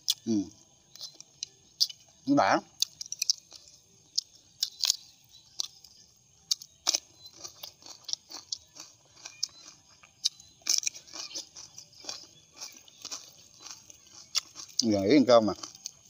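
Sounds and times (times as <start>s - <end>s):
crunchy chewing of cucumber: 0.0s - 16.0s.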